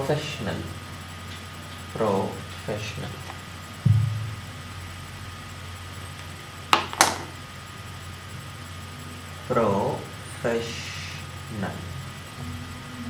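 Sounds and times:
low electrical hum: 0.0s - 13.0s
dull low thump: 3.8s - 5.3s.

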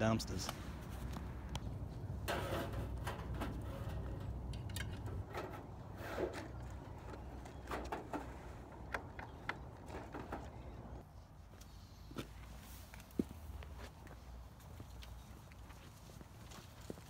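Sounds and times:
clicks clanks and rattles: 2.2s - 11.0s.

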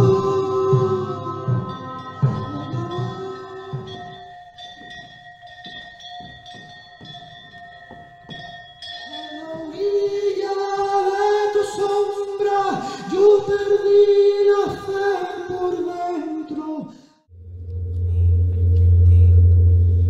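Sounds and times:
steady ringing drone: 0.0s - 10.3s, 17.3s - 20.0s.

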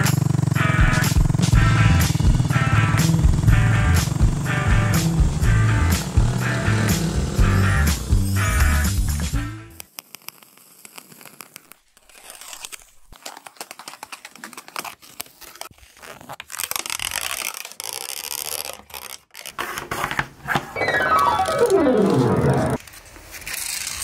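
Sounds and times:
pencil scratching: 9.9s - 13.0s.

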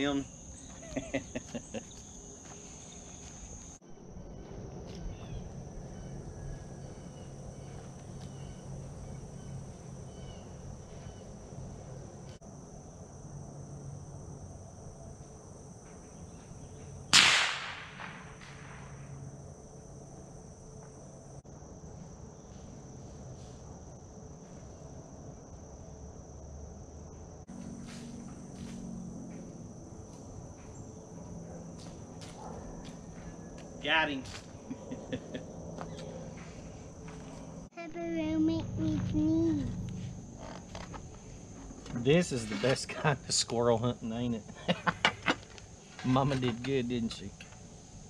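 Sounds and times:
insects and crickets: 0.0s - 48.0s
rifle shot with echo: 17.1s - 18.8s.

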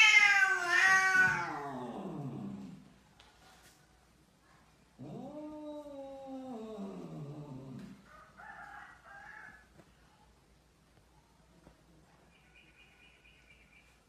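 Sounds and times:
cat yowling: 0.0s - 2.6s.

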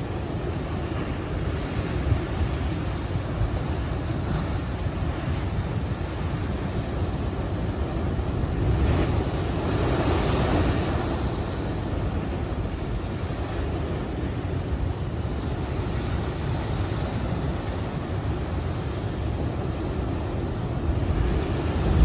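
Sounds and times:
wind buffeting the microphone: 0.0s - 22.0s
surf breaking against a sea wall: 20.7s - 22.0s
big wave crashing: 20.8s - 22.0s.

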